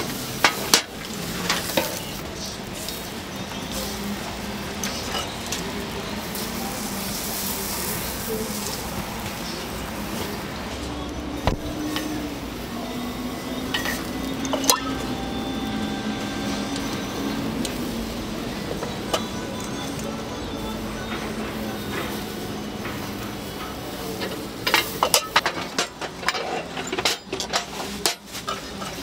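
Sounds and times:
batter sizzling in iron molds: 0:00.0 - 0:29.0
metal clinking against iron: 0:13.7 - 0:15.0, 0:22.8 - 0:29.0.

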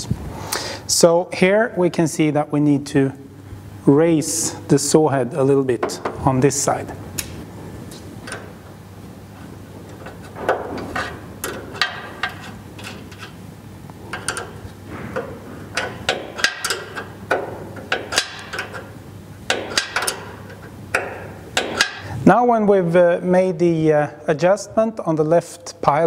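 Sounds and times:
steady low hum: 0:00.0 - 0:26.0
metallic clicks and knocks: 0:08.2 - 0:08.6, 0:09.9 - 0:13.4, 0:14.1 - 0:22.1.

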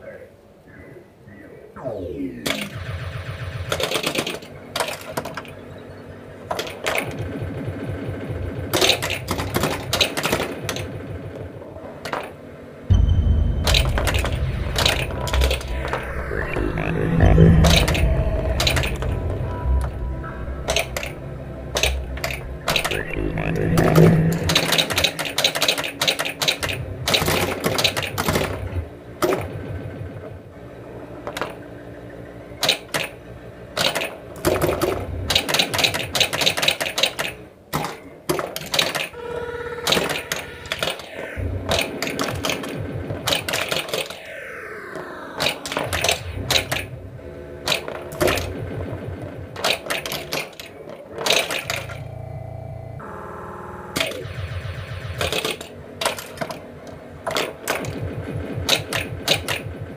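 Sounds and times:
electronic sound effects: 0:01.8 - 0:04.3, 0:12.9 - 0:27.7, 0:39.2 - 0:47.4
pinball machine clatter: 0:03.5 - 0:05.6, 0:06.4 - 0:12.5, 0:13.6 - 0:15.7, 0:20.6 - 0:30.5, 0:32.6 - 0:39.2, 0:39.8 - 0:44.2, 0:45.4 - 0:46.9, 0:47.6 - 0:52.2, 0:55.0 - 0:59.9.

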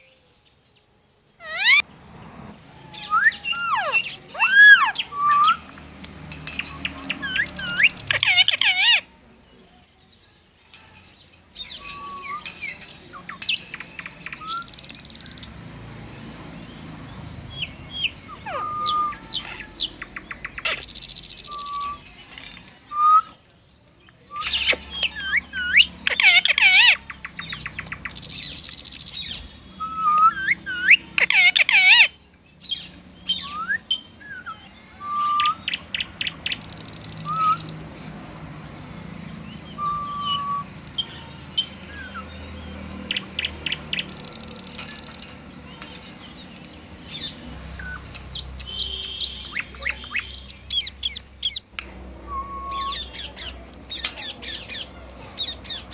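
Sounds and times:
parakeet calling: 0:01.4 - 0:01.8, 0:02.9 - 0:09.1, 0:17.9 - 0:22.0, 0:24.4 - 0:29.5, 0:30.2 - 0:33.9, 0:47.1 - 0:51.7
parakeet screeching: 0:01.4 - 0:01.8, 0:03.0 - 0:05.5, 0:07.3 - 0:09.0, 0:24.4 - 0:27.1, 0:30.3 - 0:32.2.

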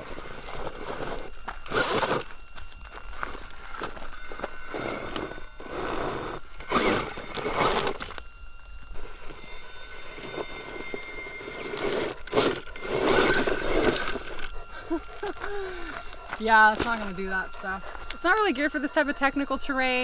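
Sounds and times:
rocks scraping and clattering: 0:00.0 - 0:08.3, 0:08.9 - 0:14.6, 0:16.0 - 0:18.2
tyres scrabbling on rocks: 0:00.0 - 0:08.3, 0:08.9 - 0:14.6
electric motor whining faintly: 0:00.0 - 0:20.0.

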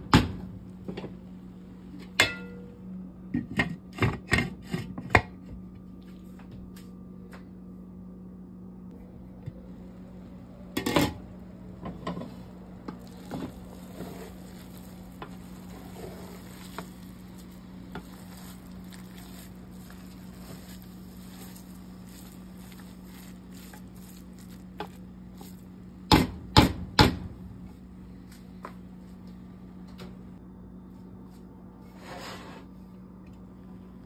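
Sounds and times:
steady low hum: 0:00.0 - 0:34.0
wooden spatula scraping rice: 0:12.2 - 0:25.6.

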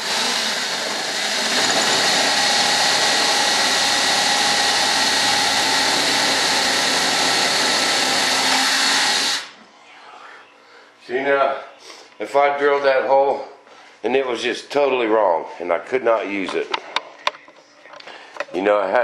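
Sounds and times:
electric drill boring into wood: 0:00.0 - 0:09.5.

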